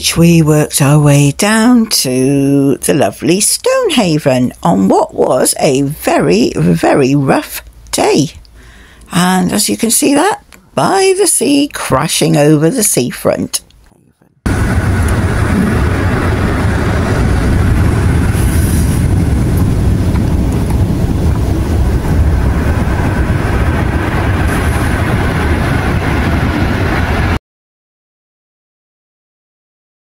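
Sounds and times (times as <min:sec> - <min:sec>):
heavy surf breaking on a sea wall: 0:14.5 - 0:27.4.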